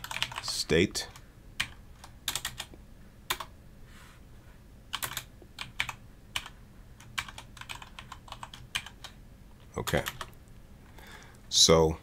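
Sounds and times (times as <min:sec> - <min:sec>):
keyboard typing: 0:00.0 - 0:02.7, 0:03.3 - 0:03.5, 0:04.9 - 0:09.2, 0:09.8 - 0:10.4.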